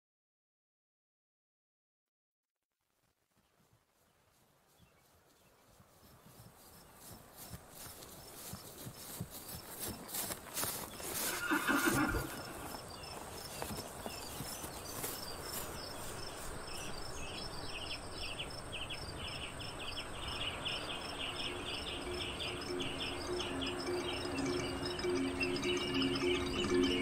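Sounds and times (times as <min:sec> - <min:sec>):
horse neighing: 0:11.2 - 0:12.8
music: 0:21.4 - 0:27.0.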